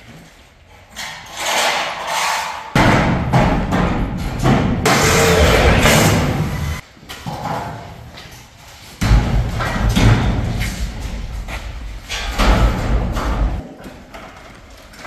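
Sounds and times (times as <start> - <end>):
thuds and knocks of garage door: 2.8 - 6.6, 9.0 - 13.6
low rumble: 4.9 - 6.8.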